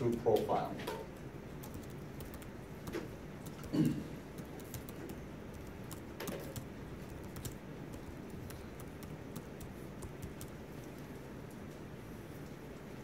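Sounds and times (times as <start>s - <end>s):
low room hum: 0.0s - 13.0s
computer keys clicking: 1.6s - 11.8s.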